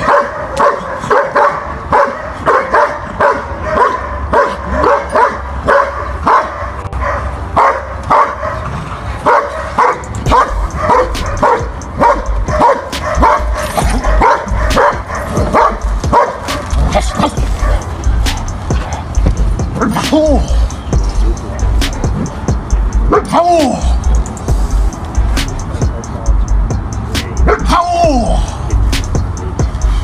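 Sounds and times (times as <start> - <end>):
dog barking: 0.0 - 18.1, 23.1 - 23.4, 27.5 - 27.7
low rumble: 10.2 - 12.6.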